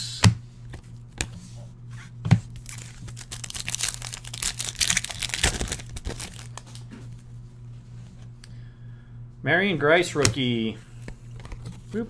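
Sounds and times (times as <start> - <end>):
foil wrapper crinkling and tearing: 2.6 - 6.8.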